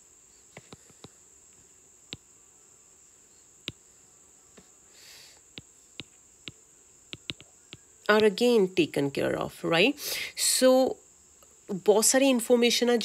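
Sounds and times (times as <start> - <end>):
stylus tapping writing tablet: 7.2 - 7.5.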